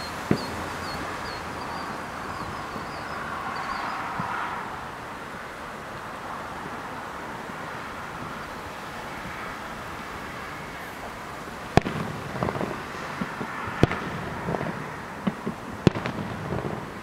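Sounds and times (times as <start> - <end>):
distant firework booms: 0.0 - 4.4, 11.7 - 17.0
steady background noise: 0.0 - 17.0
echoing rumble and small pops: 0.2 - 3.0, 11.8 - 17.0.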